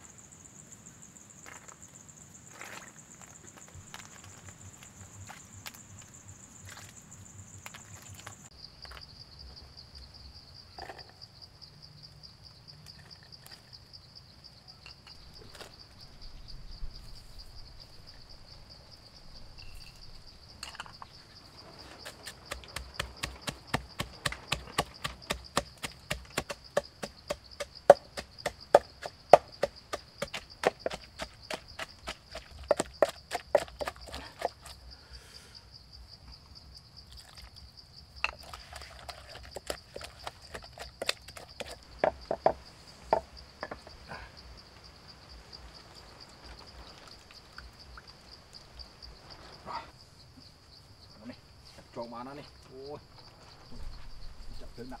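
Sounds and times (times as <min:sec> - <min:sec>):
wooden pestle pounding in mortar: 0:22.5 - 0:34.6.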